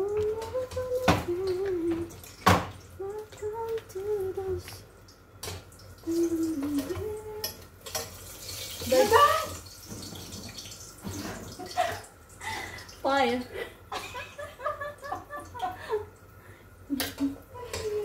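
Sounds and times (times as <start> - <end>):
person humming: 0.0 - 2.1, 3.0 - 4.8, 6.0 - 7.6, 16.9 - 18.0.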